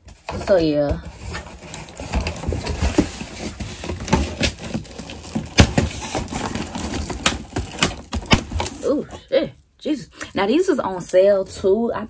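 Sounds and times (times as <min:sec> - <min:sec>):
packaging rustling: 0:00.0 - 0:09.0.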